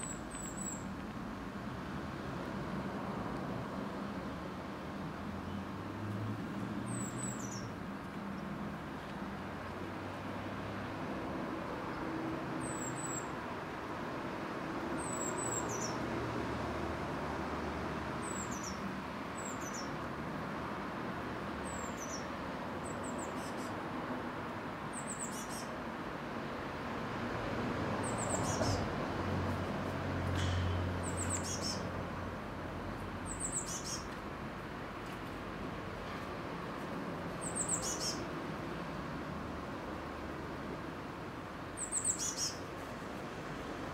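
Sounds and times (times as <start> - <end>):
small bird high calls: 0.0 - 0.9, 6.9 - 7.7, 19.4 - 20.0, 24.9 - 25.8, 28.0 - 28.9, 31.0 - 31.9, 33.2 - 34.1, 37.4 - 38.3, 41.8 - 42.6.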